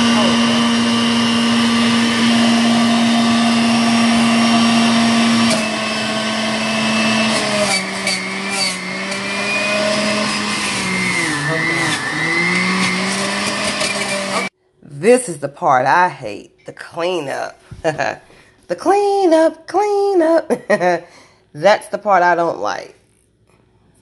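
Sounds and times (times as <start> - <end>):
juicer motor whining: 0.0 - 14.5.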